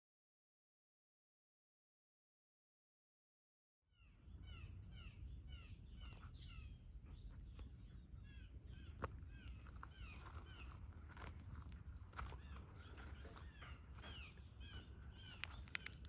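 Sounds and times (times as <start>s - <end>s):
songbirds chirping: 3.9s - 16.0s
low steady rumble: 4.1s - 15.9s
sharp clicks: 15.2s - 16.0s.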